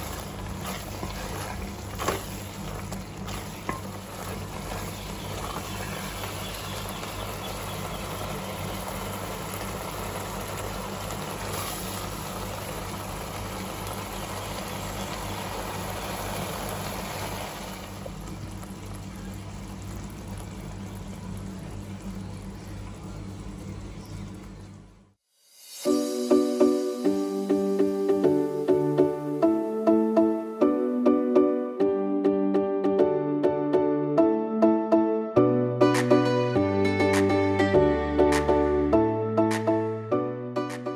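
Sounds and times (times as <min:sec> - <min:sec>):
sauce bubbling in a pan: 0:00.0 - 0:22.6.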